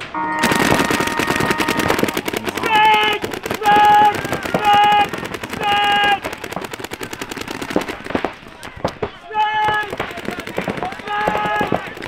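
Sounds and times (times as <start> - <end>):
horn blasts: 0.0 - 2.1
paintball markers firing rapidly: 0.4 - 12.0.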